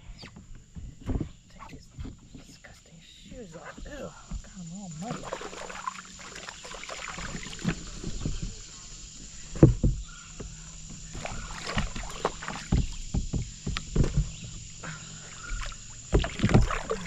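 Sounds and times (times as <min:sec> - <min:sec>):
paddle knocking against kayak: 0:00.2 - 0:02.6, 0:03.7 - 0:17.0
paddle splashing in water: 0:04.5 - 0:17.0.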